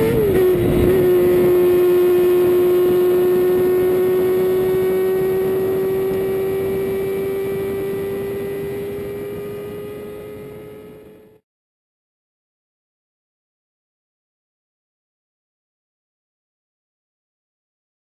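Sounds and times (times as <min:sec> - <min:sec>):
motorcycle engine at high revs: 0:00.0 - 0:11.4.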